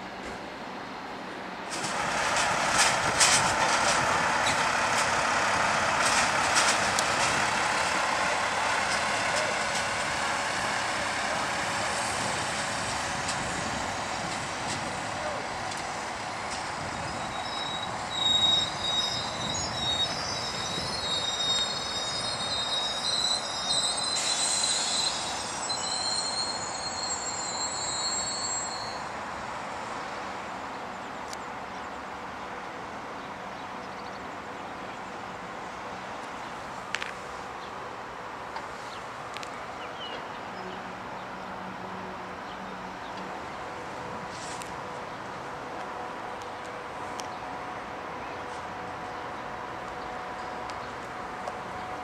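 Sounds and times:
train rolling noise with clicks: 0.0s - 52.0s
train wheels squealing on track: 6.0s - 30.2s.

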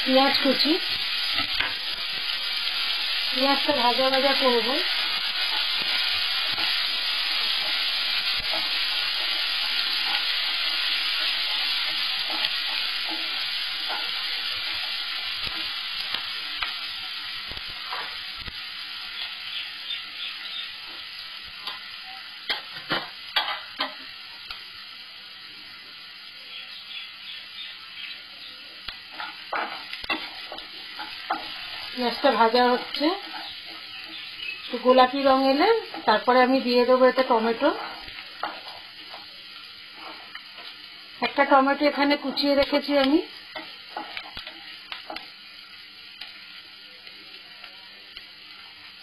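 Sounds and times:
onion sizzling in hot oil: 0.0s - 49.0s
wooden spatula scraping a pan: 39.9s - 40.8s.

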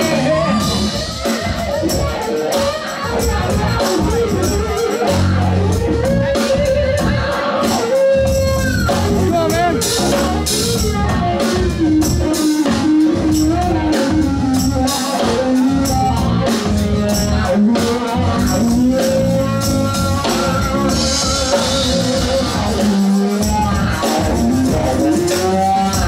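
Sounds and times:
drums: 0.0s - 26.0s
electric guitar lead: 0.0s - 26.0s.

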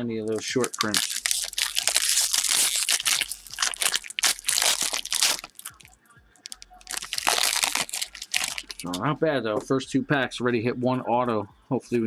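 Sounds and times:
foil wrapper tearing and crinkling: 0.3s - 5.8s, 6.4s - 8.9s.

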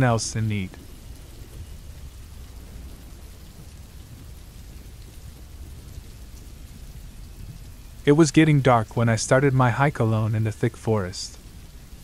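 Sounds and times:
low rumble: 0.0s - 9.0s
rainfall hiss: 0.0s - 12.0s.

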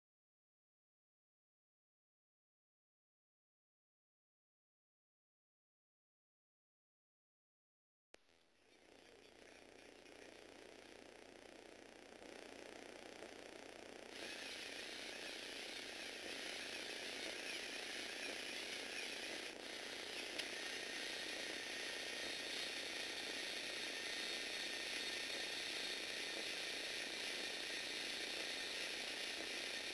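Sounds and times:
small electric motor whirring: 8.3s - 29.9s.

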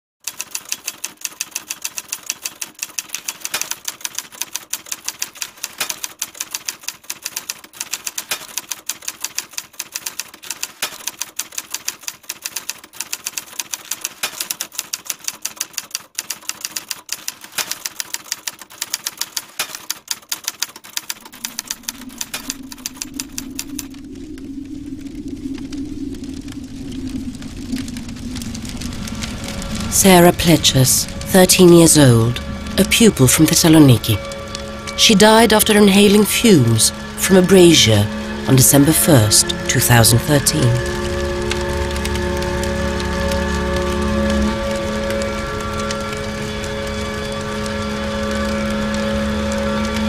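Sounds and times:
typewriter keys clacking: 0.2s - 23.9s
low steady hum: 21.3s - 50.0s.

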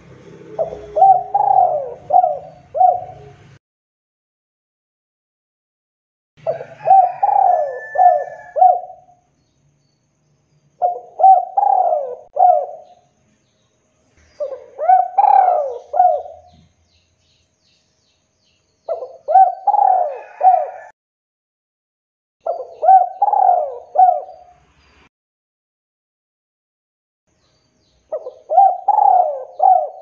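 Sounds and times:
dove cooing: 0.3s - 3.6s, 6.4s - 9.2s, 10.8s - 13.0s, 14.4s - 16.7s, 18.9s - 20.9s, 22.4s - 24.5s, 28.1s - 30.0s.

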